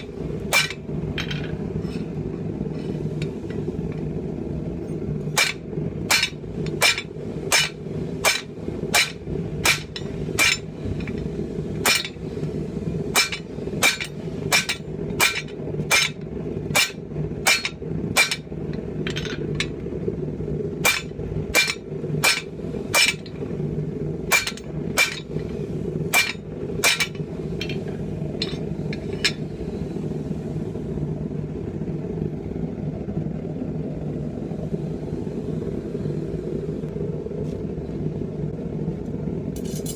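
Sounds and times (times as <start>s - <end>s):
low rumble: 0.0s - 39.9s.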